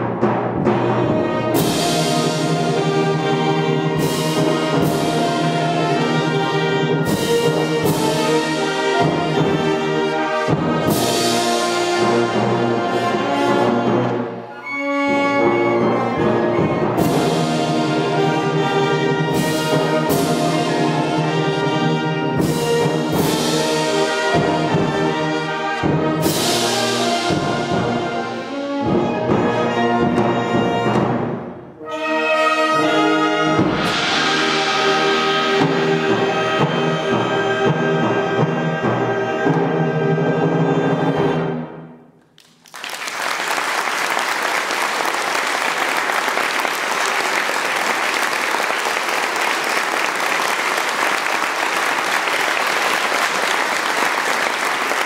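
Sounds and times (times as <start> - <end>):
wind band playing: 0.0 - 42.0, 42.8 - 55.0
audience applause: 42.4 - 55.0.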